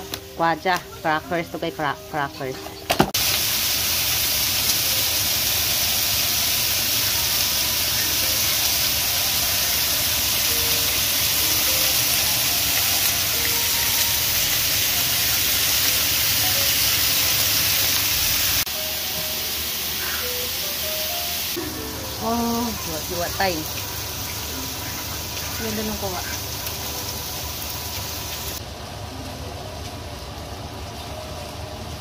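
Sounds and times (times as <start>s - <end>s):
meat sizzling in a frying pan: 3.2s - 21.6s, 22.2s - 28.6s.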